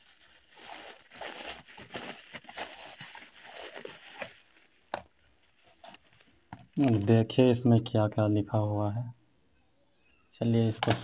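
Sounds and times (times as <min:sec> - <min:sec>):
bubble wrap crinkling: 0:00.0 - 0:07.1.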